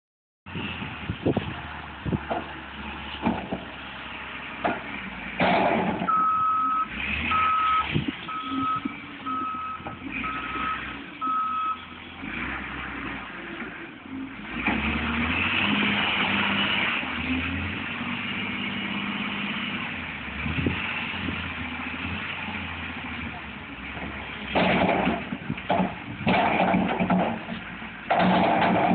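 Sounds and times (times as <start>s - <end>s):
loader engine running: 0.5s - 28.9s
backup alarm beeping: 6.1s - 11.8s.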